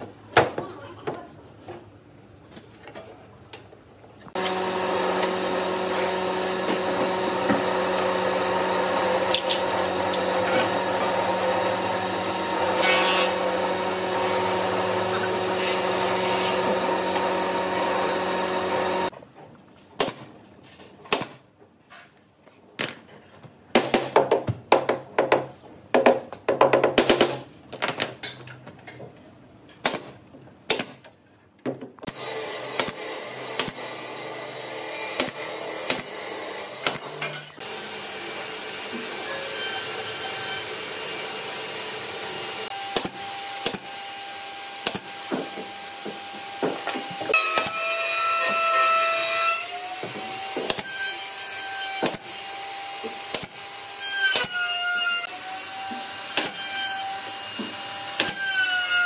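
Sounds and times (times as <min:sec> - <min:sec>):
electric power tool motor running: 0:04.4 - 0:19.1.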